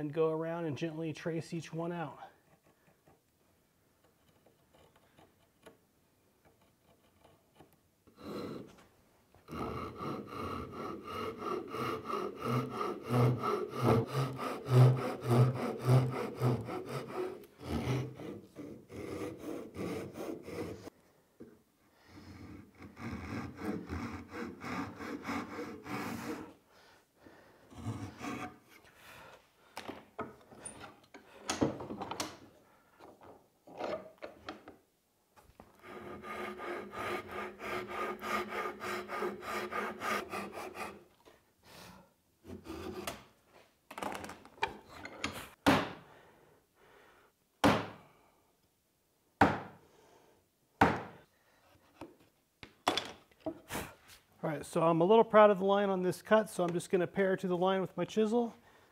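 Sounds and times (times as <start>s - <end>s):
rasping saw strokes: 9.5s - 20.9s, 22.1s - 26.6s, 27.7s - 28.9s, 35.8s - 41.1s
sharp wooden knocks: 50.8s - 51.1s.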